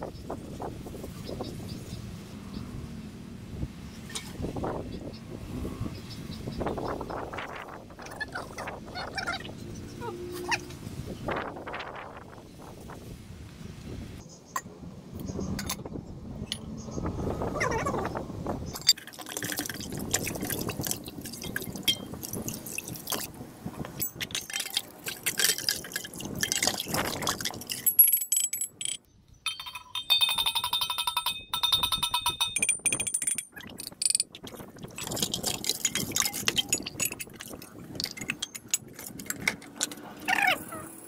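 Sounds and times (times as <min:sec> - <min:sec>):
metal vessels clinking: 0:18.8 - 0:23.3, 0:24.0 - 0:40.1
water splashing and dripping: 0:18.8 - 0:27.9, 0:33.5 - 0:40.1
fluttering ringing tone: 0:29.5 - 0:32.6.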